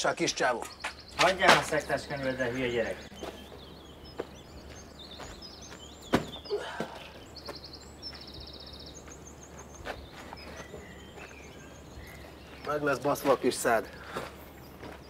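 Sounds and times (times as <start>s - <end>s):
birds chirping and trilling: 0.0s - 15.0s.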